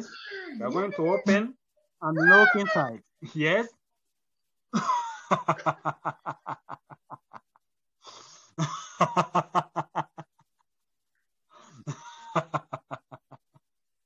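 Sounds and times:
hearty laughter: 0:04.7 - 0:07.6, 0:08.6 - 0:10.6, 0:11.8 - 0:13.5.

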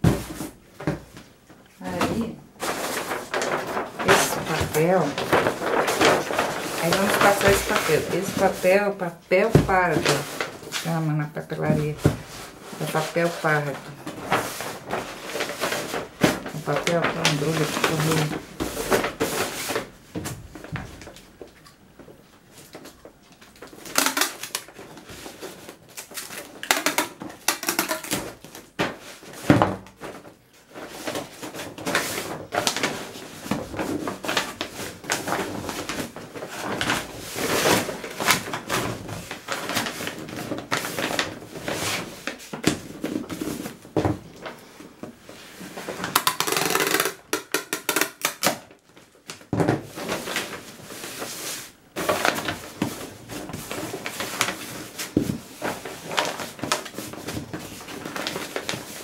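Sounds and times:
paper crinkling and rustling: 0:00.0 - 0:59.0
packing tape pulled from dispenser: 0:23.9 - 0:24.7, 0:25.9 - 0:28.2, 0:46.1 - 0:48.6.

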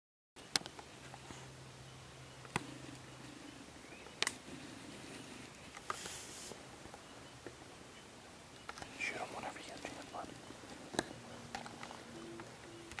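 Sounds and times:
faint low hum: 0:00.4 - 0:13.0
soft hiss: 0:00.9 - 0:10.7.

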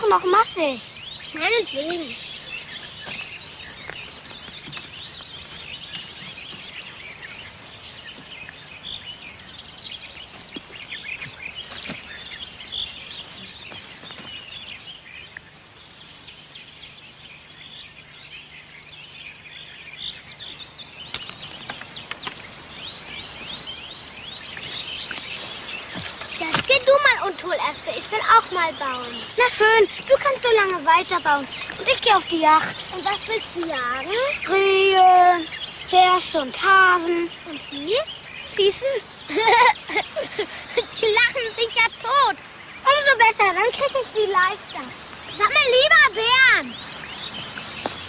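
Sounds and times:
small birds chirping: 0:00.0 - 0:48.0
branches knocking and snapping: 0:02.8 - 0:08.4, 0:10.2 - 0:12.5, 0:21.1 - 0:22.5, 0:24.6 - 0:27.2.

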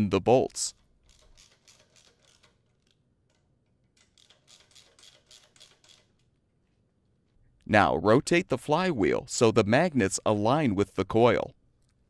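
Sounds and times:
ratchet wrench clicking: 0:01.0 - 0:06.3.

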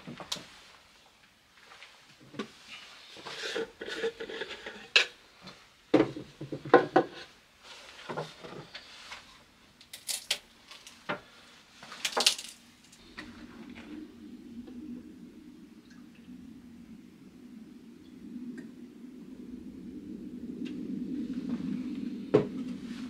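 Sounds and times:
metal can and plastic parts clinking: 0:09.9 - 0:11.0, 0:12.1 - 0:12.6.

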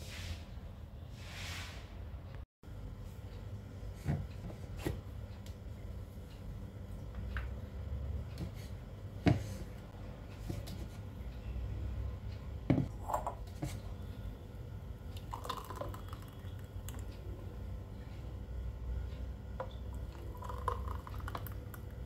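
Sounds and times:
juice pouring into a glass: 0:15.2 - 0:17.0, 0:20.0 - 0:22.0.

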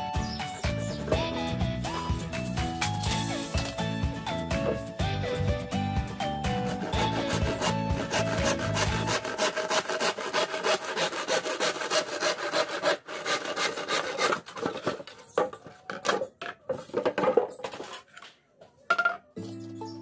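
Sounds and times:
background music: 0:00.0 - 0:09.3, 0:19.4 - 0:20.0
hand saw cutting bamboo: 0:06.4 - 0:15.0.

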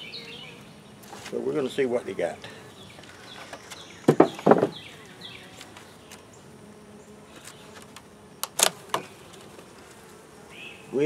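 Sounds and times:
faint hum of honeybees: 0:00.0 - 0:11.0
wooden lid knocking: 0:04.1 - 0:04.8.

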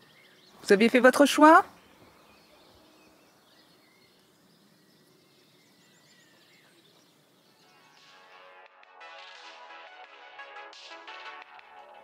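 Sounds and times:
faint bird chirps: 0:00.0 - 0:07.9
music: 0:07.2 - 0:12.0.

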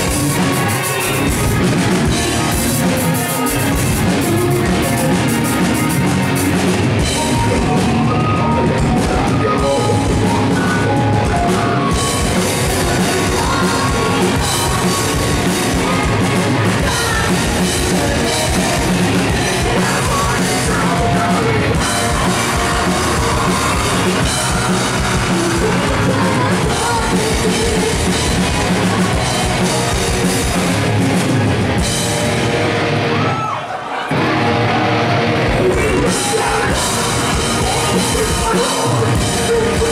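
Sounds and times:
live band playing loud: 0:00.0 - 0:39.9
person singing and yelling: 0:07.2 - 0:30.8, 0:35.4 - 0:39.9.

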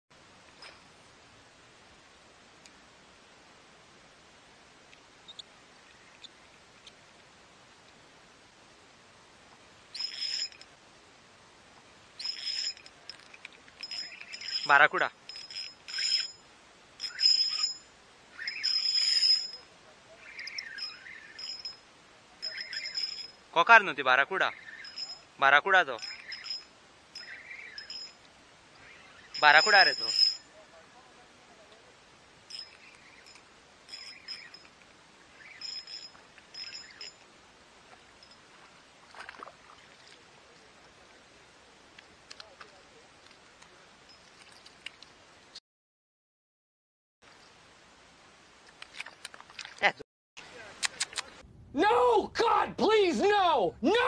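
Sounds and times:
fishing reel whirring: 0:10.0 - 0:10.7, 0:12.2 - 0:12.9, 0:13.8 - 0:14.7, 0:15.3 - 0:16.4, 0:17.0 - 0:17.8, 0:18.4 - 0:19.6, 0:24.8 - 0:25.2, 0:26.0 - 0:26.6, 0:27.2 - 0:28.1
fish splashing and thrashing: 0:38.5 - 0:40.2.

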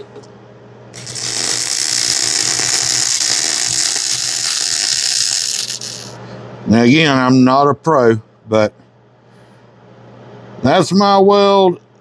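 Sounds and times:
welding arc crackling sizzle: 0:01.0 - 0:06.2.

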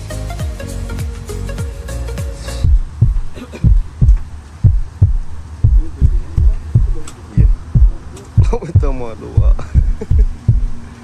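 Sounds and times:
heartbeat thumps: 0:02.6 - 0:10.9.

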